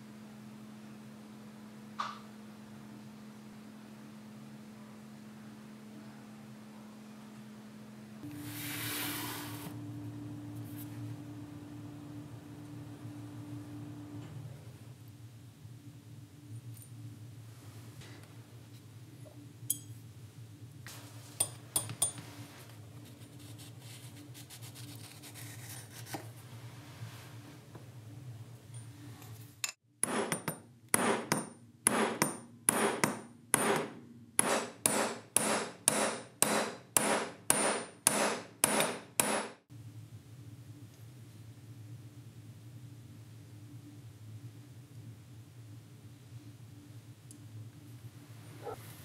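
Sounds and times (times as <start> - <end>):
steady low hum: 0.0 - 49.0
abrasive scraping on metal: 8.2 - 9.8.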